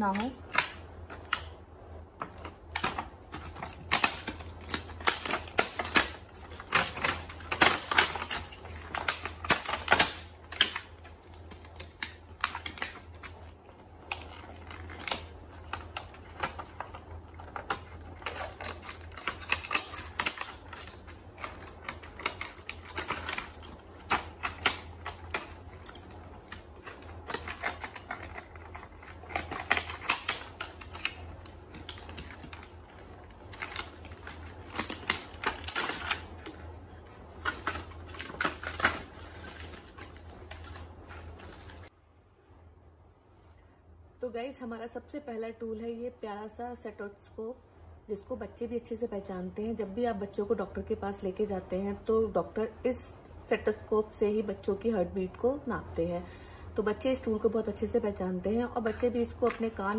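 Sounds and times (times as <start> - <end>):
plastic wrapping crinkling: 0.0 - 41.9
low steady hum: 0.0 - 59.9.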